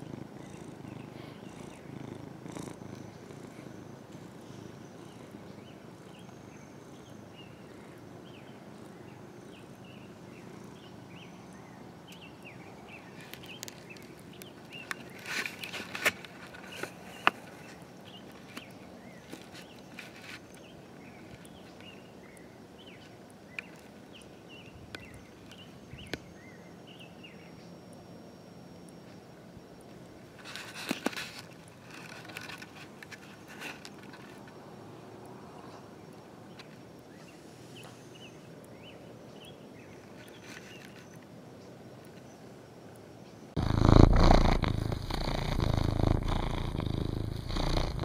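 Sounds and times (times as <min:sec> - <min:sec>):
small birds chirping: 0:00.0 - 0:28.0, 0:30.1 - 0:48.0
steady background noise: 0:00.0 - 0:48.0
clicks and rustles: 0:13.2 - 0:21.9, 0:30.4 - 0:34.6.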